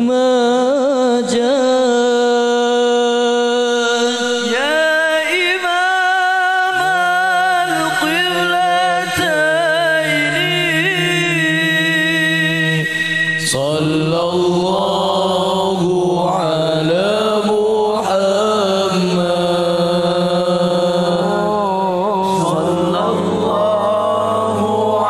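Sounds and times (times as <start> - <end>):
men singing devotional song: 0.0 - 25.0.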